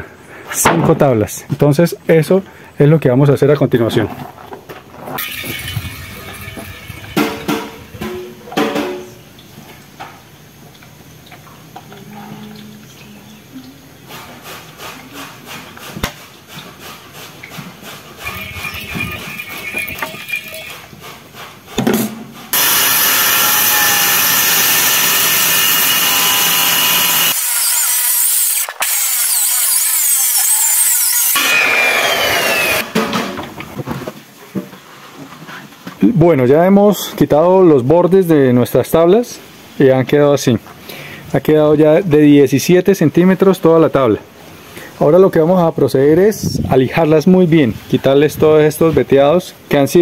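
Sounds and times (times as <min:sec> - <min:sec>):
circular saw cutting wood: 0:05.2 - 0:08.2, 0:18.2 - 0:21.0, 0:22.5 - 0:33.0.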